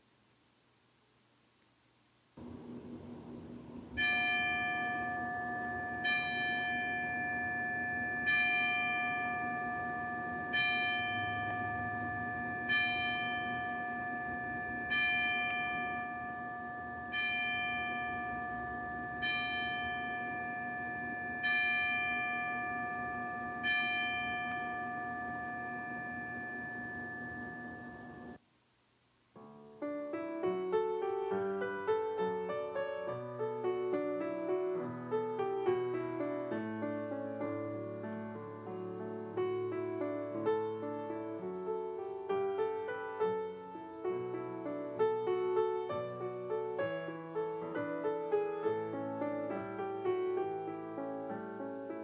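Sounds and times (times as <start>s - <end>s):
bell ringing: 3.9s - 28.4s.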